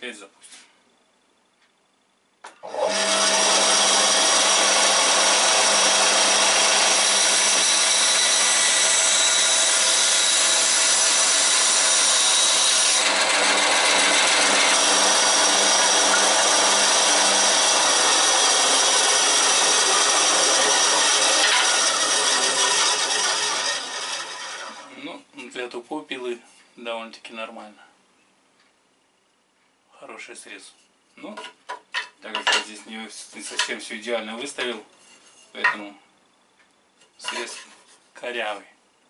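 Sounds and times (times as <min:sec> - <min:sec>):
band saw cutting wood: 0:02.6 - 0:25.0, 0:37.2 - 0:37.8.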